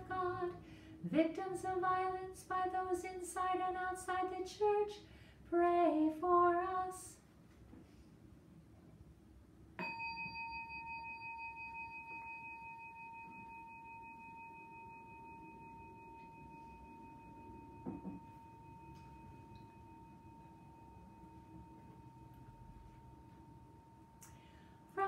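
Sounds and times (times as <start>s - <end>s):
bell ringing: 9.8s - 23.3s
soft knock: 17.8s - 18.2s.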